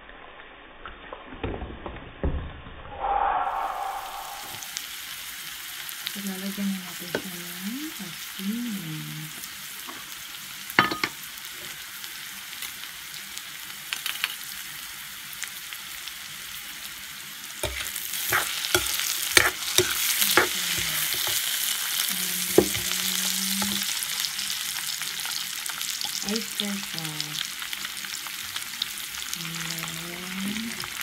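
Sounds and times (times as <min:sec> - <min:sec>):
vegetables sizzling in wok: 0:03.6 - 0:31.0
ladle scraping and clinking on pan: 0:17.6 - 0:21.4.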